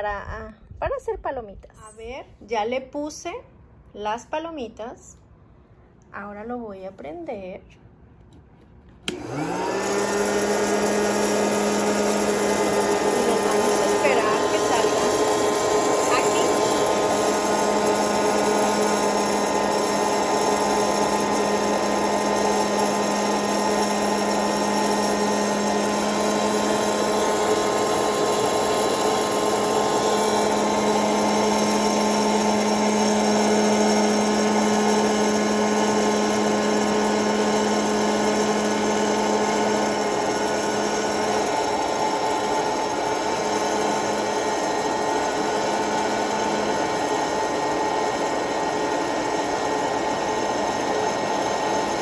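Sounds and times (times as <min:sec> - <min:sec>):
popcorn maker fan whirring: 0:08.2 - 0:52.0.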